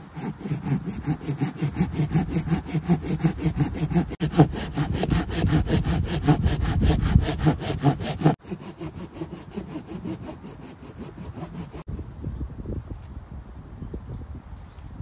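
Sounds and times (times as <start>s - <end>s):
hand saw cutting wood: 0.0s - 11.9s.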